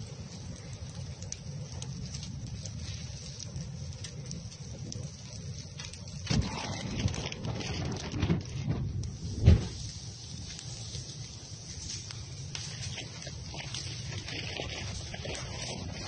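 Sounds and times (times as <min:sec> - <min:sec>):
fire crackling: 0:00.0 - 0:16.0
wind rumble on microphone: 0:00.0 - 0:16.0
irregular thumps: 0:06.3 - 0:09.8.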